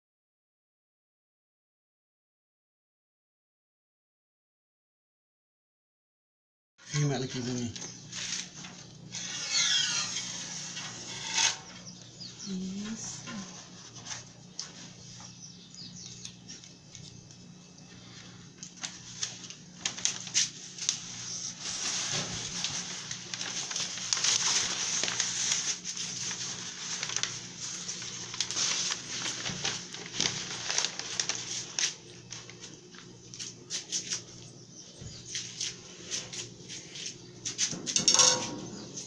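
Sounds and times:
knife scratching: 9.1 - 12.4
plastic film crackling: 18.5 - 34.5.

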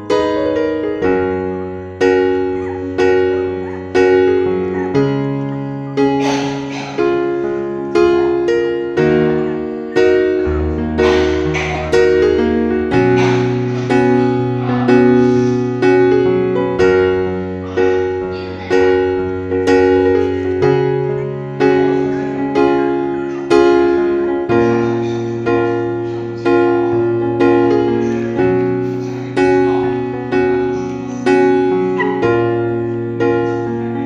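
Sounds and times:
solo piano music: 0.0 - 34.0.

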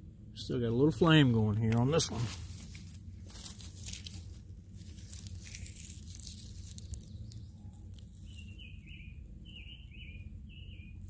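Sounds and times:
striker scraping fire starter fibres: 1.8 - 8.6
bird chirping: 5.4 - 11.0.

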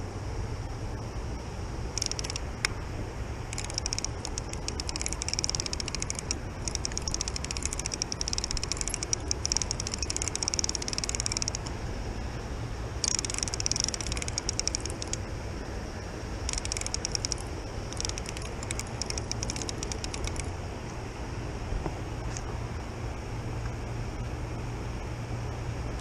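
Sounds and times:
steady low rumble: 0.0 - 26.0
fishing reel clicking and whirring: 1.9 - 2.8, 3.5 - 11.7, 13.0 - 15.2, 16.4 - 20.6.

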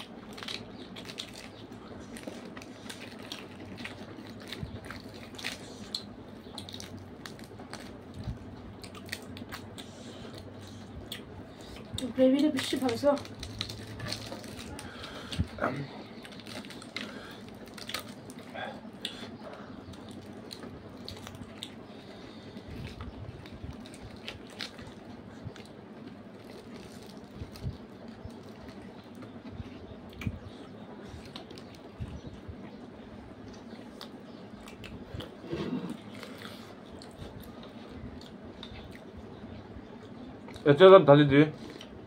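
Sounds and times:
fingers tearing bread: 0.0 - 32.3
people chewing and biting food: 0.0 - 40.7, 41.5 - 42.0.

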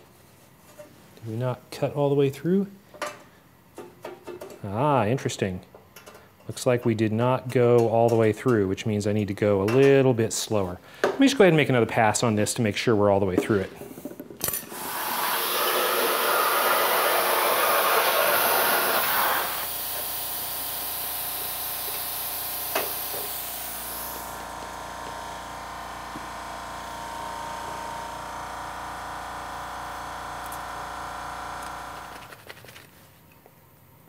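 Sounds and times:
air hiss: 14.7 - 24.4
plasma cutter arc hissing: 14.7 - 24.4.

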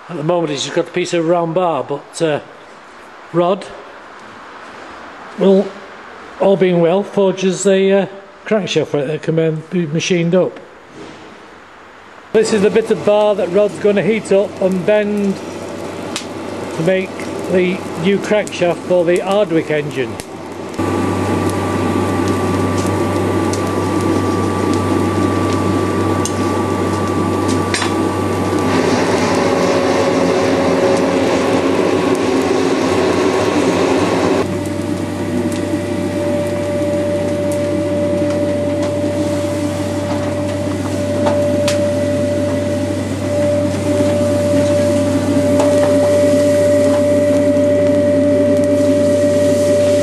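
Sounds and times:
thin steady whine: 0.0 - 50.0
forge blower running: 12.2 - 50.0.

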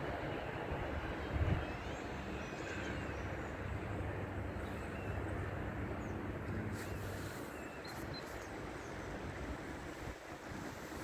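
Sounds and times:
steady rushing noise: 0.0 - 11.0
faint bird chirps: 6.0 - 9.1.

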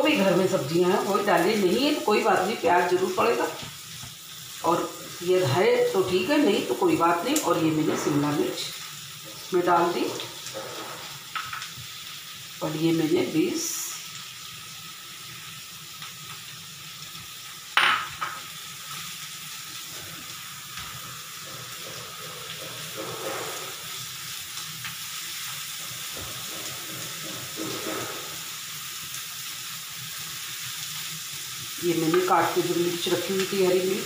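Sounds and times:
vegetables sizzling in oil: 0.0 - 34.0
spatula scraping pan: 0.1 - 11.7, 20.9 - 24.1, 25.7 - 28.6.

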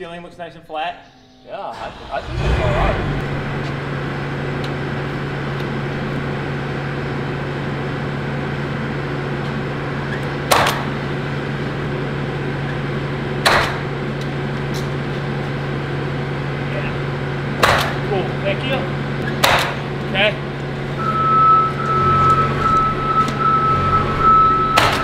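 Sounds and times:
steady low hum: 0.5 - 10.1.

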